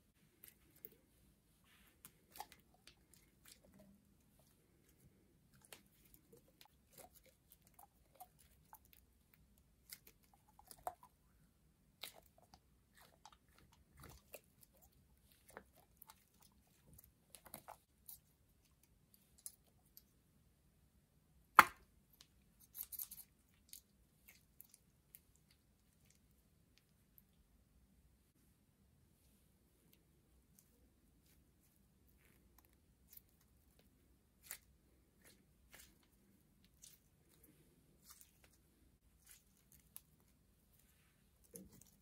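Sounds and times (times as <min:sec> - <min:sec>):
squishing liquid-filled balloon: 0:00.0 - 0:20.0, 0:30.0 - 0:42.0.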